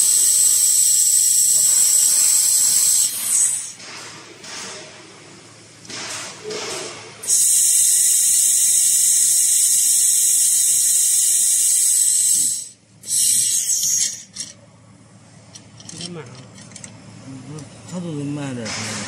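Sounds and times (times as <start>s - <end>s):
laser welder hiss: 0.0s - 3.8s, 7.2s - 14.3s.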